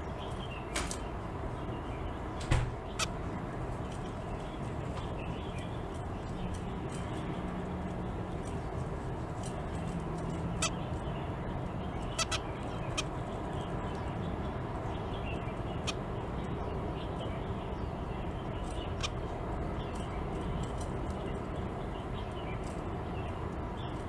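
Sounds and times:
finch calls: 0:00.0 - 0:07.4, 0:09.5 - 0:24.0.

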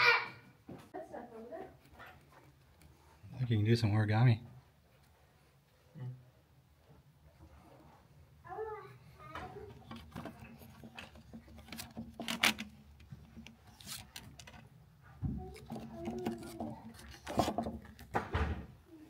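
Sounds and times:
laminated sheets rubbing and scraping: 0:09.6 - 0:14.6, 0:15.4 - 0:18.2.

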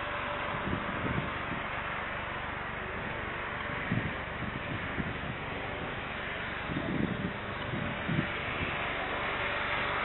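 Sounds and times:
wind noise: 0:00.0 - 0:02.0, 0:02.9 - 0:09.1
distant jet engines: 0:00.0 - 0:10.0.

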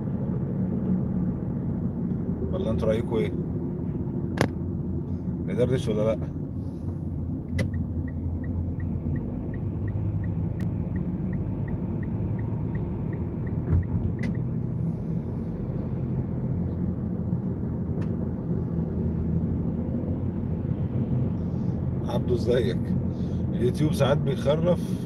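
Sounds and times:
road and engine rumble in car: 0:00.0 - 0:25.0
turn signal ticking: 0:07.5 - 0:14.6.

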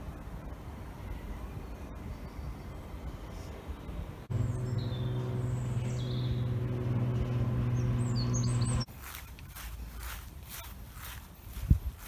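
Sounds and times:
cable car mechanical hum: 0:04.2 - 0:08.9
small birds chirping: 0:04.3 - 0:12.0.

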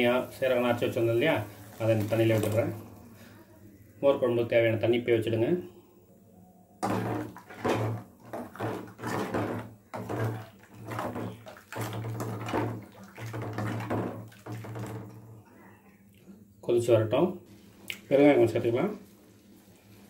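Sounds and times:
ladle sloshing and scraping in metal pot: 0:06.8 - 0:15.6.

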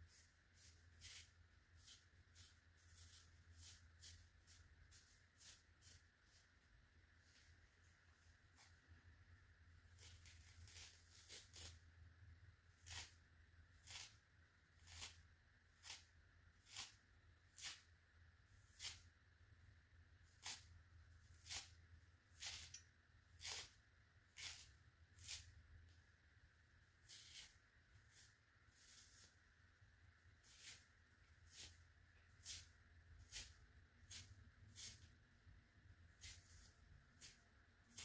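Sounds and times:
sponge tearing: 0:00.1 - 0:06.0, 0:09.9 - 0:11.8, 0:12.8 - 0:13.2, 0:13.8 - 0:14.2, 0:14.8 - 0:15.2, 0:15.8 - 0:17.9, 0:20.3 - 0:25.5, 0:27.0 - 0:29.4, 0:30.4 - 0:31.8, 0:32.4 - 0:35.1, 0:36.1 - 0:38.0.

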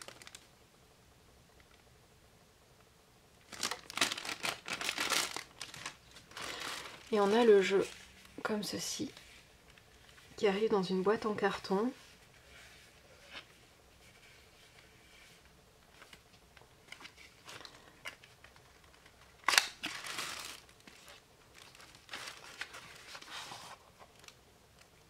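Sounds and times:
cardboard rustling: 0:03.5 - 0:10.4, 0:11.9 - 0:24.4.

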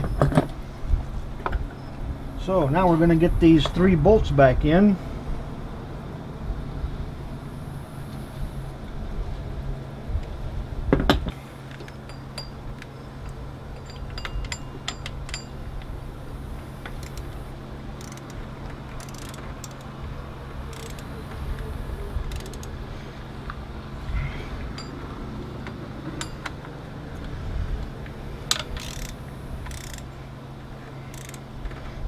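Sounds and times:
steady low hum: 0:00.0 - 0:32.0
metallic clicks of bolts and tool: 0:28.5 - 0:30.1, 0:31.1 - 0:31.4.

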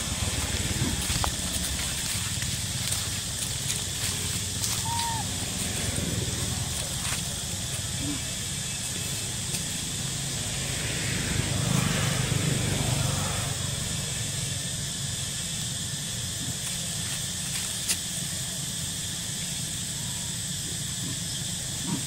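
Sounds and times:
vehicle passing on road: 0:00.0 - 0:15.2
steady hiss: 0:00.0 - 0:22.0.

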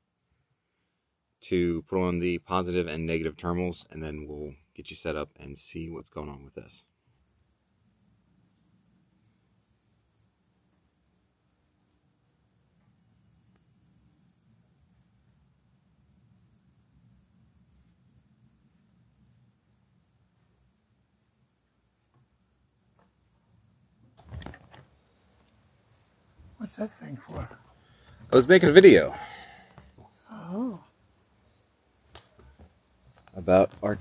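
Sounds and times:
insects trilling: 0:00.0 - 0:34.0.

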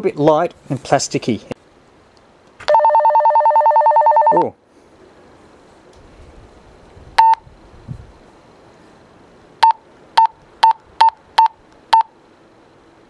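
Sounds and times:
walkie-talkie key beeps: 0:07.2 - 0:07.4.

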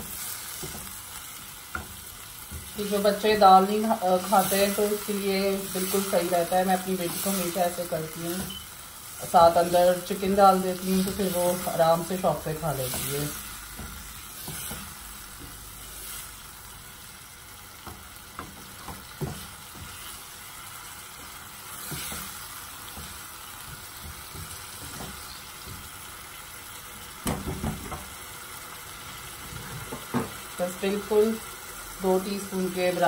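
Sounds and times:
chicken sizzling in oil: 0:00.0 - 0:33.0
spatula scraping and tapping pan: 0:00.5 - 0:02.8, 0:12.8 - 0:15.7, 0:17.7 - 0:20.2, 0:21.7 - 0:25.9.

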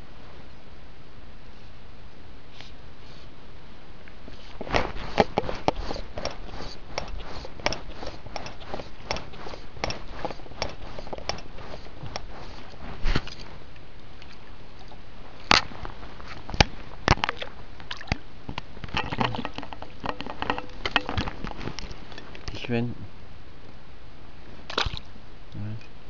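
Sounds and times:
clicks and knocks of handling: 0:04.6 - 0:13.5, 0:18.5 - 0:22.6
fish splashing into water: 0:24.7 - 0:25.0.

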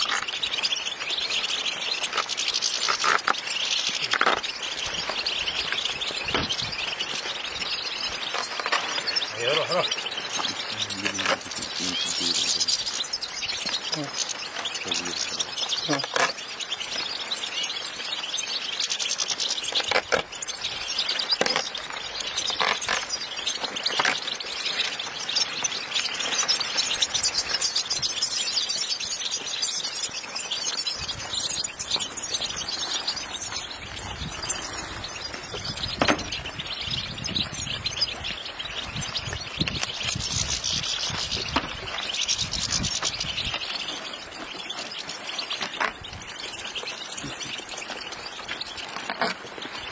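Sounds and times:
birds chirping and twittering: 0:00.0 - 0:49.9
wooden crates knocking: 0:36.0 - 0:36.5.

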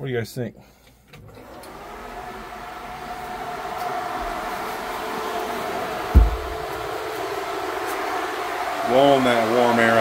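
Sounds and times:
radiator fans blowing: 0:01.2 - 0:10.0
truck engine running: 0:02.1 - 0:07.8
low thump: 0:06.1 - 0:06.8.

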